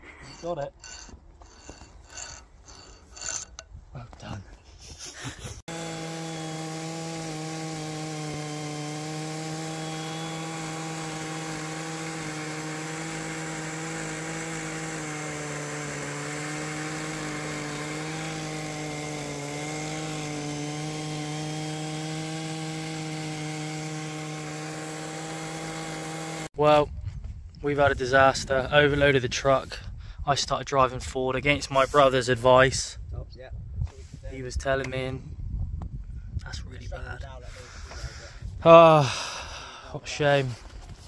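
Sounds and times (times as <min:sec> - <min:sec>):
chainsaw cutting wood under load: 0:05.6 - 0:26.6.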